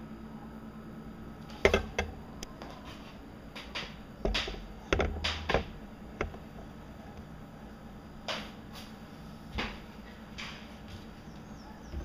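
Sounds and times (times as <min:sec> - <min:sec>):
faint steady hum: 0:00.0 - 0:12.0
handling clicks and thuds: 0:01.5 - 0:02.2, 0:03.5 - 0:06.5.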